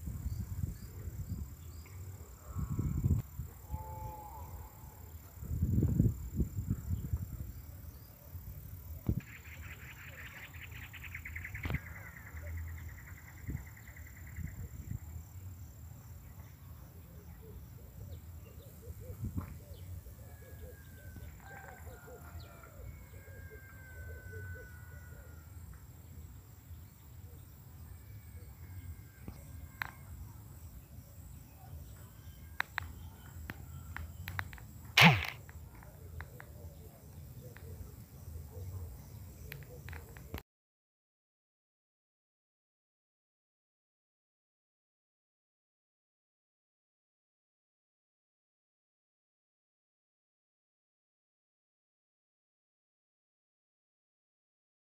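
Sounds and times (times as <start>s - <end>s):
thin gliding bird calls: 9.2s - 14.8s
sharp knock: 35.0s - 35.4s
bird buzzing trill: 35.0s - 35.5s.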